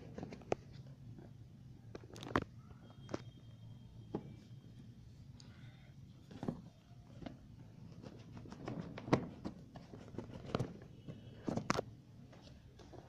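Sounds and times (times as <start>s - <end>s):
hands handling cardboard box: 6.2s - 13.0s.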